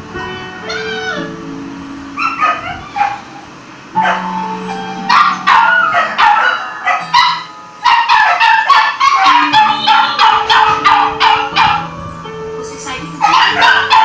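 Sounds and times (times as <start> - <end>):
small dog yipping: 0.7 - 1.3, 2.2 - 3.4, 5.1 - 11.9, 13.2 - 14.0.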